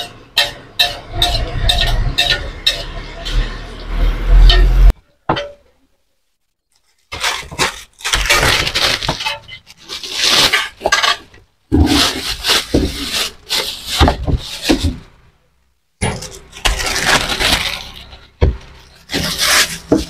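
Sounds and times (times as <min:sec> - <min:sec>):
spatula and cleaver clattering: 0:00.0 - 0:03.7.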